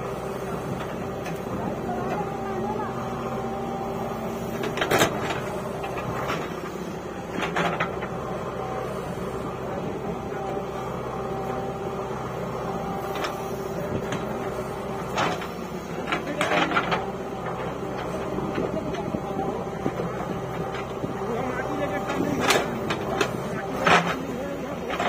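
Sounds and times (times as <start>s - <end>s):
diesel engine running under load: 0.0s - 25.0s.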